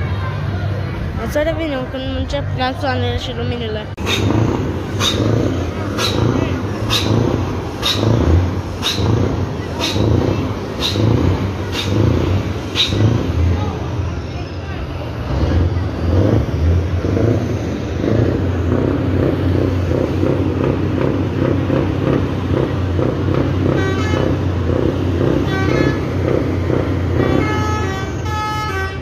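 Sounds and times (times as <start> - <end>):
diesel truck engines rumbling: 0.0 - 29.0
multi-note truck horn toots: 23.6 - 29.0.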